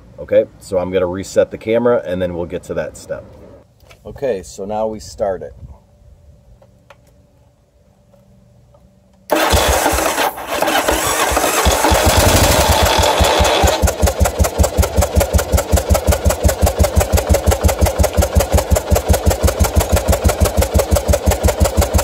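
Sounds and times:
motorcycle engine idling unevenly: 11.0 - 22.0.

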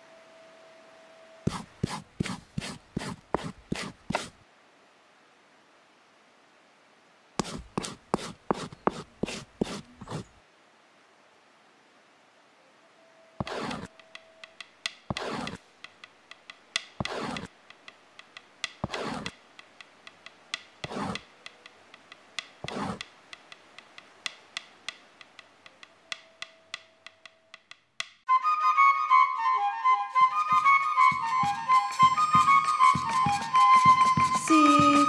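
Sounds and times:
slow rasping swishes: 1.5 - 4.4, 7.4 - 10.4, 13.4 - 26.8, 30.5 - 35.0
flute melody music: 28.3 - 35.0.

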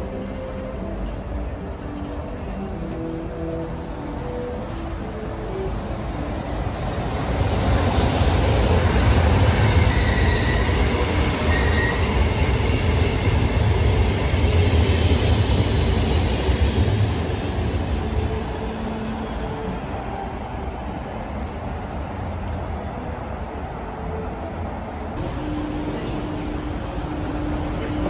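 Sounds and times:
electric train rumble: 0.0 - 28.0
train wheels squealing: 9.5 - 12.5.

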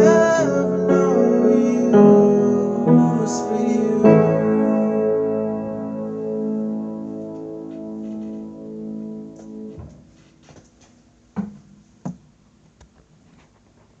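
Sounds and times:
piano chord ringing: 0.0 - 9.9
soft rustling: 7.2 - 8.8, 9.4 - 14.0
short thumps: 11.4 - 12.2.

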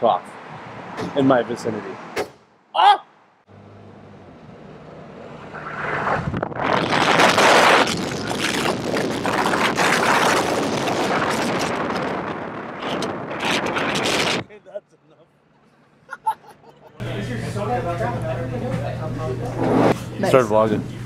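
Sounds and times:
car engine hum: 3.5 - 6.2
wind rushing over microphone: 5.0 - 14.5, 19.4 - 20.0.

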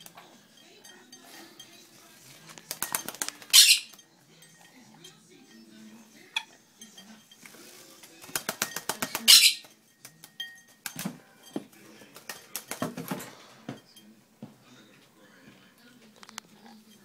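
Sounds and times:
parrot flapping and splashing: 2.4 - 4.0, 7.4 - 11.2, 11.8 - 13.4.

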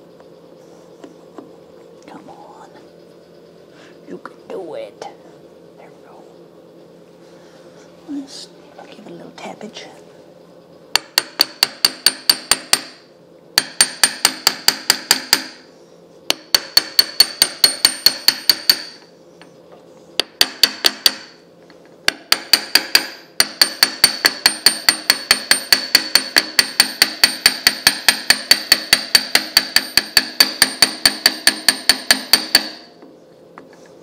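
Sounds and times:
hammer tapping metal gear: 11.0 - 13.0, 16.3 - 19.0, 22.1 - 33.0.

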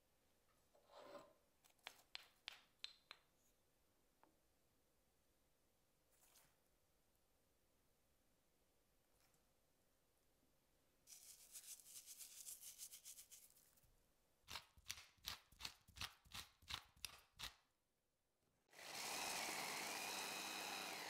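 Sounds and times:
electric mini chopper running: 18.8 - 21.0.

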